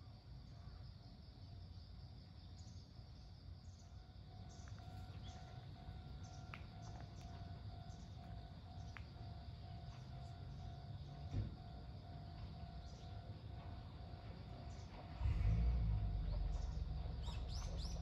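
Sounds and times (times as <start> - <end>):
crickets chirping: 0.0 - 18.0
railway crossing warning bell: 3.8 - 18.0.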